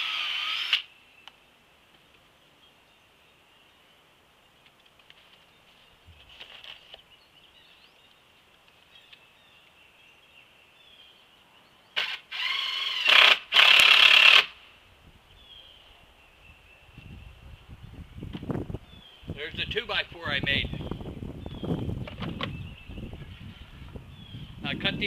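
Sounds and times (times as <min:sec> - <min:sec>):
cordless drill into wood: 0:00.0 - 0:00.9, 0:12.0 - 0:14.6.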